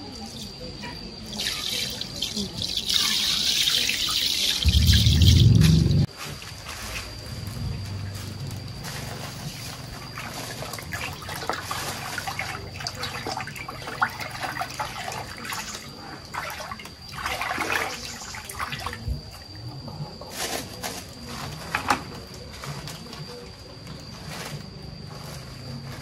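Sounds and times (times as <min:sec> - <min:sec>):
water splashing and sloshing: 0:09.6 - 0:19.5.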